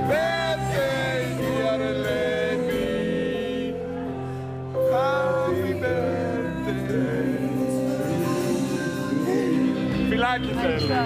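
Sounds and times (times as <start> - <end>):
voices singing: 0.0 - 4.1, 4.8 - 11.0
band playing: 0.0 - 11.0.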